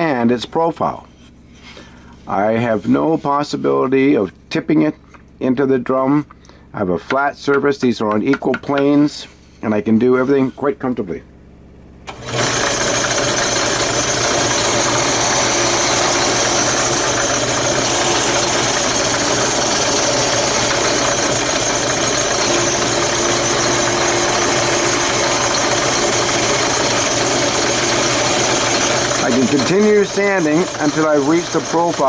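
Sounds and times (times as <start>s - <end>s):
sanding drum grinding wood: 0.9s - 4.1s, 12.3s - 32.0s
drill press motor hum: 12.0s - 32.0s.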